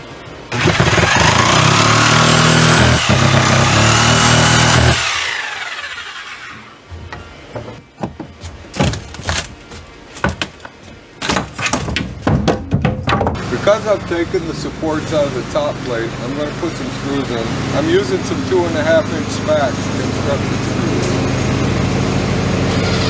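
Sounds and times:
reciprocating saw cutting: 0.5s - 6.9s, 13.4s - 23.0s
knocks and cracks of wood: 6.9s - 13.5s.

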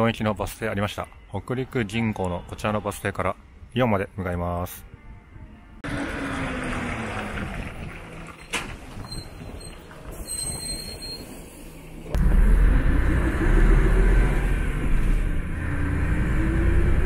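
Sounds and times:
bus diesel engine: 5.8s - 17.0s.

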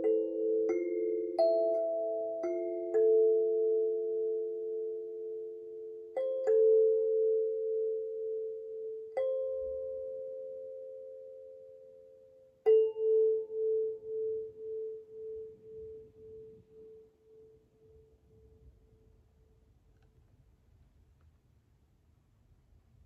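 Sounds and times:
kalimba notes plucked: 0.0s - 11.6s.

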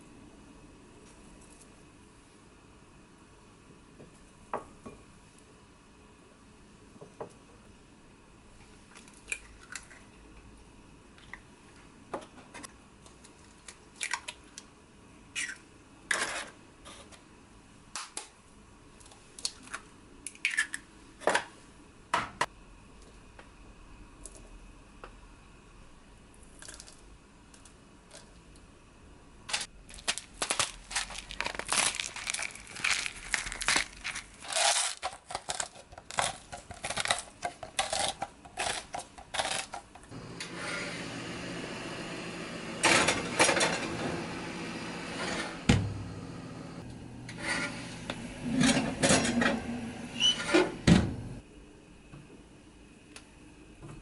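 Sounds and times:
eggs cracked into metal tin: 20.3s - 20.8s
pepper grinder crunching: 29.5s - 40.0s.

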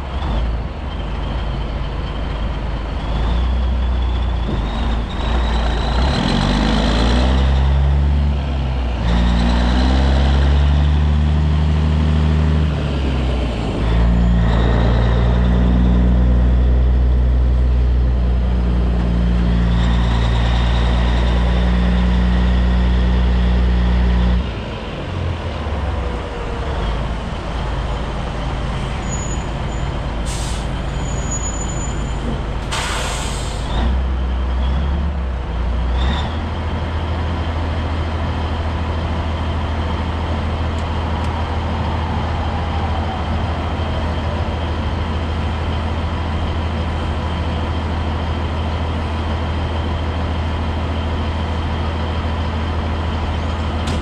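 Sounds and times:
diesel truck engine revving: 0.0s - 54.0s
air brake hiss: 30.2s - 30.9s, 32.6s - 33.8s.

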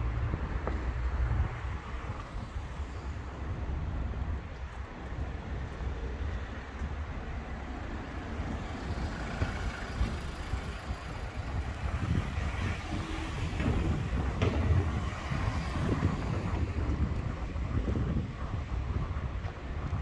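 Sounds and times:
road traffic noise: 0.0s - 20.0s
wind rumbling on microphone: 0.0s - 20.0s.

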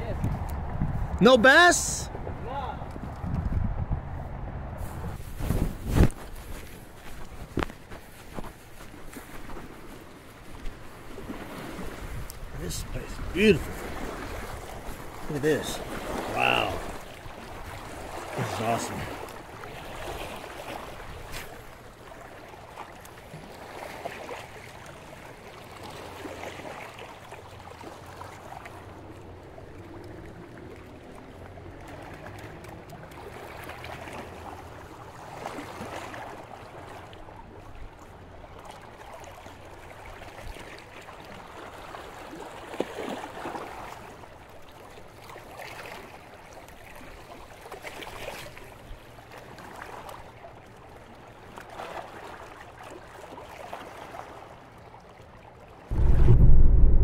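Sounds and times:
lake water lapping on shore: 0.0s - 56.1s.

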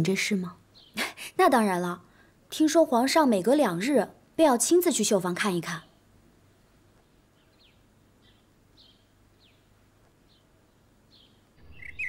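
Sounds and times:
small bird chirping: 6.9s - 12.0s.

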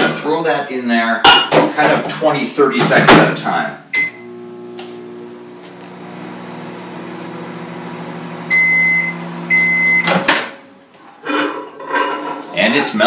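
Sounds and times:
microwave oven humming: 3.9s - 10.2s
microwave beeping: 3.9s - 10.4s.

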